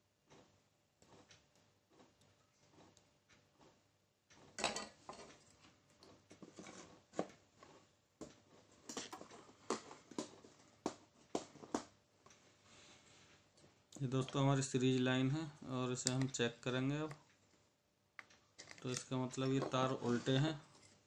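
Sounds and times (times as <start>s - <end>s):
plastic rustling: 18.6s - 21.0s.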